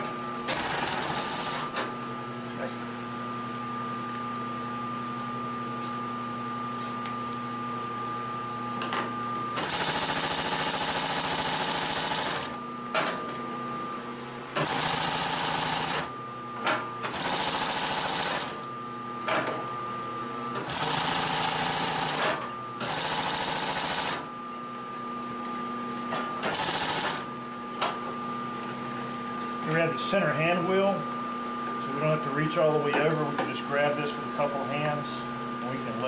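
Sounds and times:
steady motor hum: 0:00.0 - 0:36.0
industrial sewing machine stitching: 0:00.5 - 0:01.7, 0:09.6 - 0:12.6, 0:14.6 - 0:16.1, 0:17.0 - 0:18.6, 0:20.6 - 0:24.2, 0:26.4 - 0:27.2.

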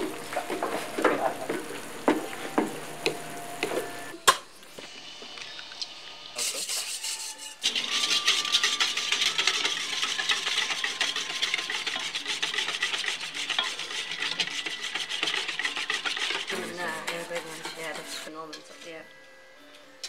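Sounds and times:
whisk scraping metal bowl: 0:06.4 - 0:19.0.

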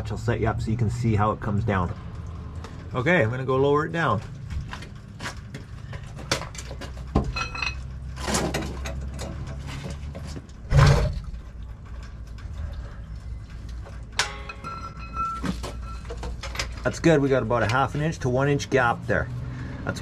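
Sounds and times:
ringing metallic clinks: 0:14.2 - 0:16.5.

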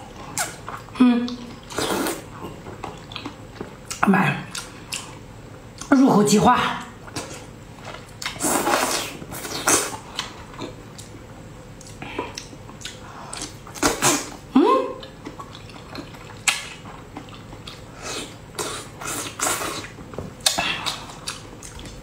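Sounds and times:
wet slurping mouth sounds: 0:01.6 - 0:02.3.

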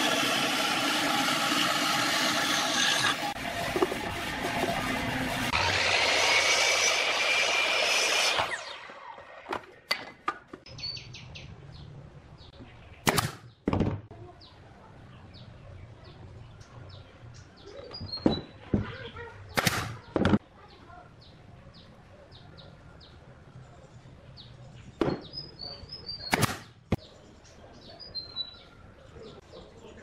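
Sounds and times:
mitre saw whining: 0:00.0 - 0:09.7
pneumatic nail gun bangs: 0:13.0 - 0:13.9, 0:19.6 - 0:20.0.

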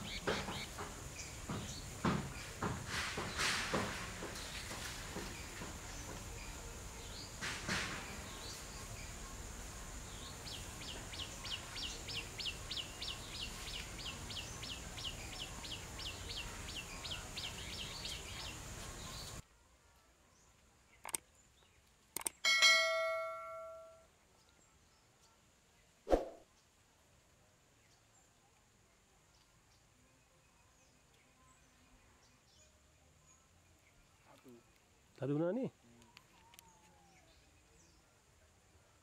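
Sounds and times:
sharp clicks: 0:21.0 - 0:21.3, 0:22.1 - 0:22.4
bell chime: 0:22.5 - 0:24.0.

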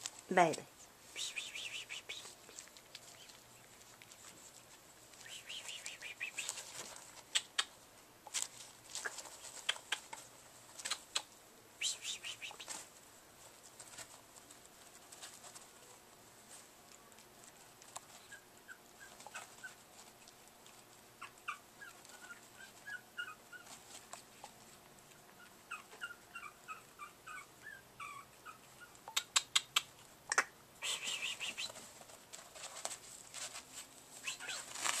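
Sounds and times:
puppies squeaking and yipping: 0:01.2 - 0:03.9, 0:18.1 - 0:20.1, 0:21.2 - 0:24.5, 0:25.4 - 0:30.0, 0:30.8 - 0:32.1, 0:34.2 - 0:35.0.

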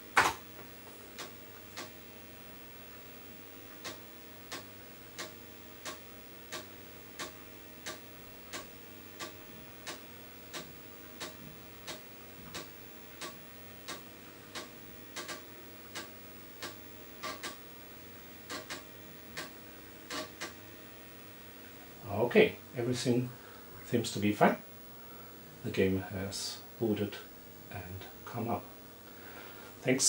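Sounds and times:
faint steady hum: 0:00.0 - 0:30.0
floppy drive clicking: 0:03.7 - 0:17.7, 0:18.4 - 0:20.6.

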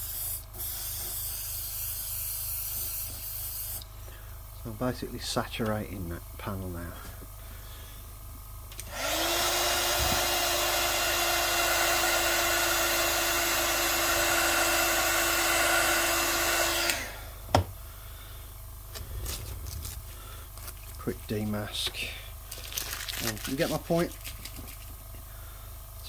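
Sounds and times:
hot-air blower hissing: 0:06.7 - 0:22.5.

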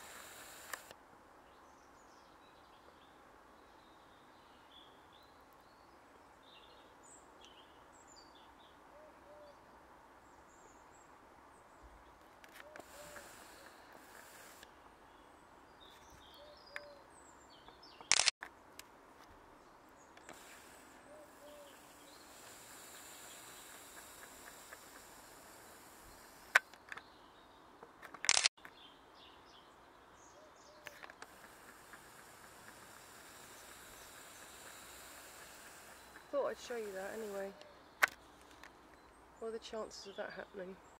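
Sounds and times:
small birds chirping: 0:00.0 - 0:00.9, 0:01.5 - 0:18.8, 0:19.5 - 0:40.9
outdoor background hiss: 0:00.0 - 0:40.9
sharp click: 0:00.5 - 0:01.0, 0:18.0 - 0:18.9, 0:28.0 - 0:28.5.

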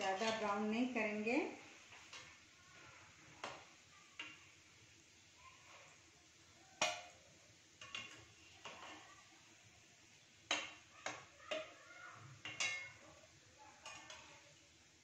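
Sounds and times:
steel spoon clinking against pot: 0:07.8 - 0:09.0, 0:12.4 - 0:13.1.

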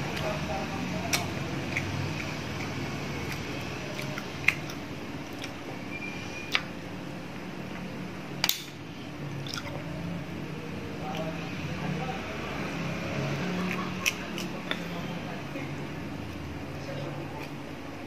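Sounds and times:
wet chewing: 0:01.0 - 0:05.6, 0:09.4 - 0:09.9, 0:13.5 - 0:14.9.

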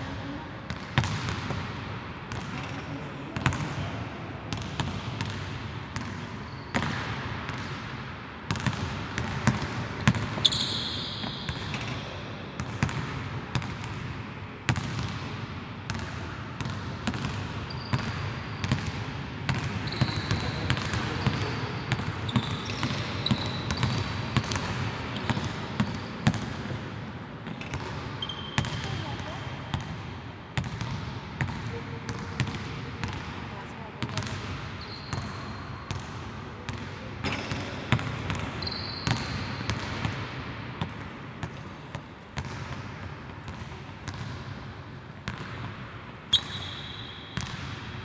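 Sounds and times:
sneakers squeaking on floor: 0:06.0 - 0:07.0, 0:09.5 - 0:12.2, 0:17.2 - 0:18.9, 0:19.5 - 0:26.8, 0:27.4 - 0:29.1, 0:34.1 - 0:36.0, 0:37.2 - 0:40.1, 0:46.3 - 0:47.7.

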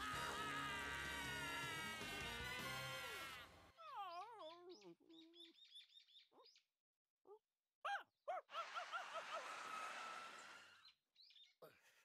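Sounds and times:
small birds chirping: 0:03.8 - 0:07.4, 0:10.4 - 0:11.9
dog yelping: 0:07.9 - 0:09.0.

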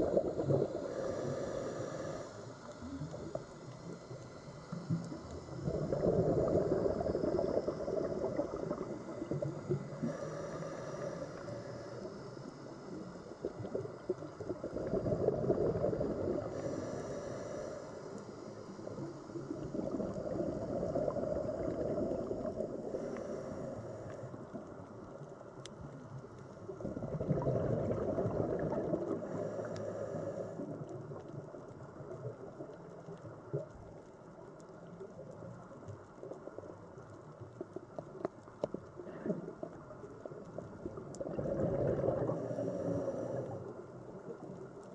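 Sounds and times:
bubbles gurgling underwater: 0:00.0 - 0:00.9, 0:05.4 - 0:10.0, 0:13.4 - 0:16.5, 0:19.4 - 0:22.8, 0:26.7 - 0:29.4, 0:39.0 - 0:43.7
regulator inhalation hiss: 0:00.4 - 0:05.6, 0:06.9 - 0:13.4, 0:16.1 - 0:19.5, 0:21.6 - 0:24.5, 0:29.1 - 0:30.7.

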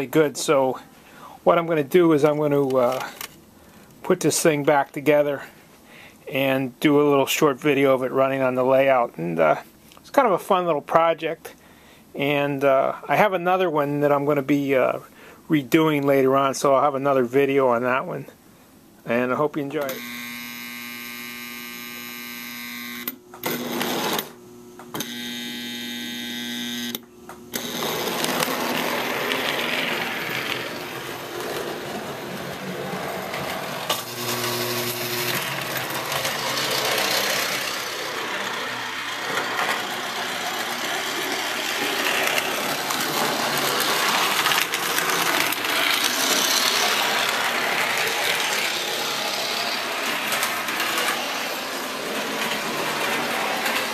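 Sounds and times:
model trolley motor hum: 0:19.9 - 0:24.3, 0:25.0 - 0:53.9
model train rumble on track: 0:27.8 - 0:53.9.

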